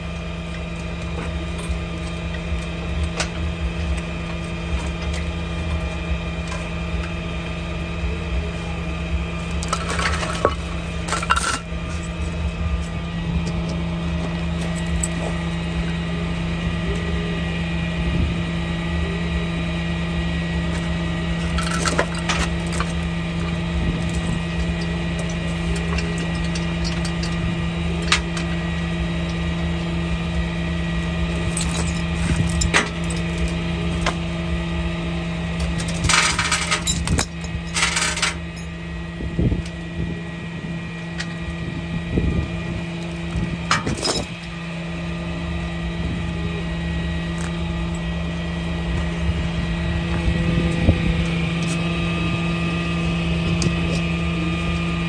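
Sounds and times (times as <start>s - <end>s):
vehicle engine idling: 0.0s - 55.0s
metal chain clanks and rattles: 9.4s - 12.1s, 21.4s - 28.6s, 31.3s - 34.3s, 35.6s - 38.8s, 43.0s - 44.5s.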